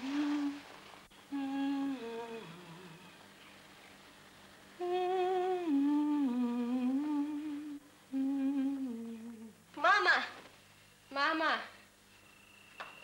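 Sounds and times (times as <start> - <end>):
woman humming a lullaby: 0.0 - 0.7, 1.3 - 3.2, 4.8 - 9.7.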